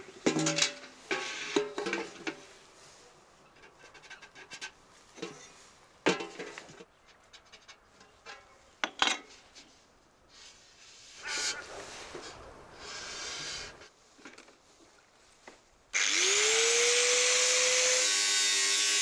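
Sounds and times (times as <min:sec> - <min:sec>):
light taps and scrapes on metal: 0:00.2 - 0:02.6, 0:03.4 - 0:09.9.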